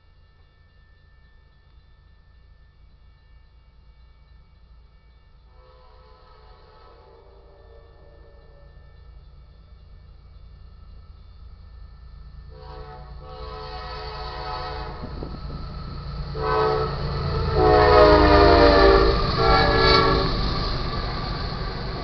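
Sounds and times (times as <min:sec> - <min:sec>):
locomotive rumble: 0:05.4 - 0:22.0
locomotive air horn blasts: 0:05.5 - 0:08.9, 0:12.5 - 0:15.3, 0:16.3 - 0:20.5.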